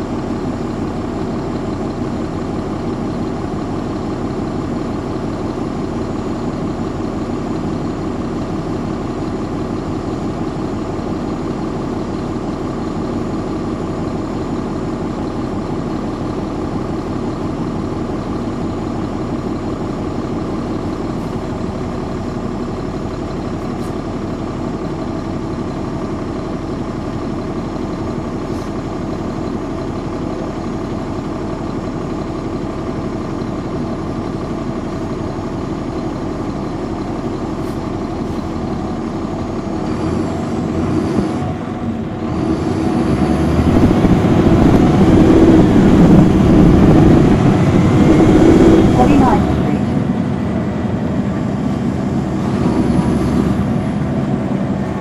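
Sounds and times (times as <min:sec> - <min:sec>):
bus diesel engine idling: 0:00.0 - 0:55.0
bus engine revving with whine: 0:37.6 - 0:55.0.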